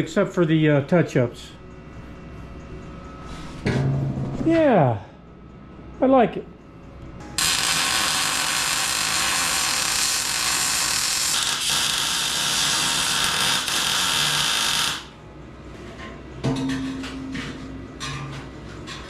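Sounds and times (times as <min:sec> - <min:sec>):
welding arc hissing: 0:07.4 - 0:15.1.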